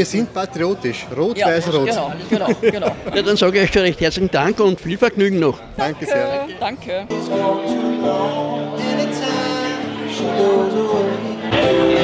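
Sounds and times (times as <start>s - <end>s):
acoustic guitars: 7.1s - 12.0s
man singing: 7.1s - 12.0s.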